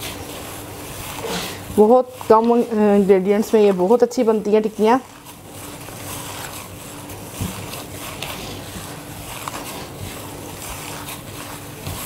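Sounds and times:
gloved hand squelching food: 0.0s - 12.0s.

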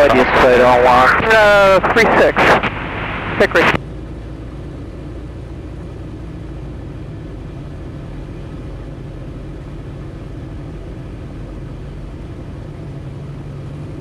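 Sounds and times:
airflow noise: 0.0s - 5.2s
propeller plane engine drone: 0.0s - 14.0s.

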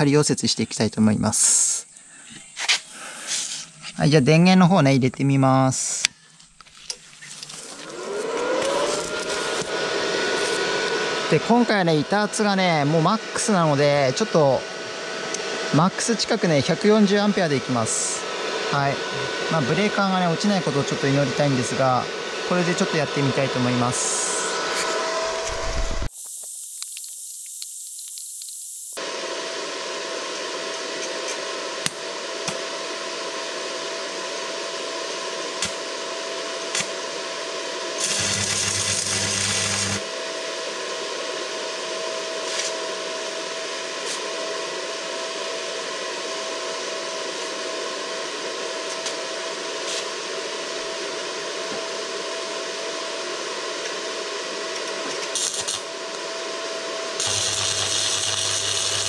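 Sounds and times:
thin whine: 0.0s - 59.0s
low hum: 23.5s - 26.1s
welding arc crackling: 25.3s - 29.0s, 38.0s - 40.1s, 55.2s - 55.9s, 57.2s - 59.0s.

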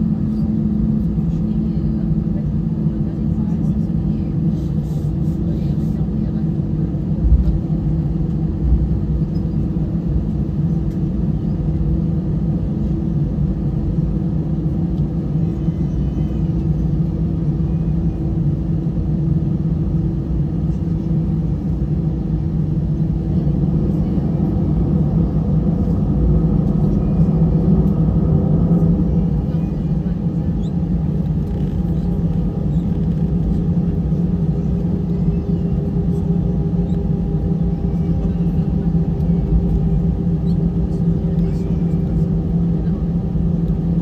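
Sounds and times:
aircraft engines rumbling at idle: 0.0s - 44.0s.

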